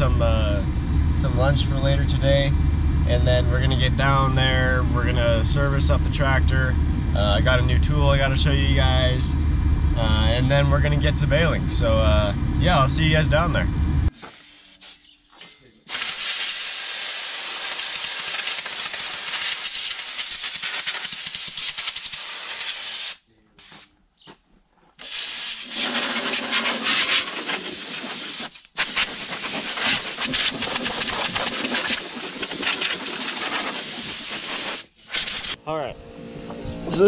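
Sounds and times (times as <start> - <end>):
compressed air blow gun hissing: 14.1 - 15.0, 15.9 - 23.9, 25.0 - 35.6.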